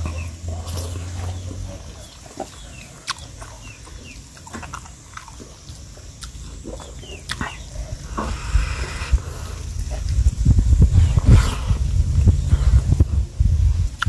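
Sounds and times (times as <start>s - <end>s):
person chewing and smacking: 0.0s - 8.5s.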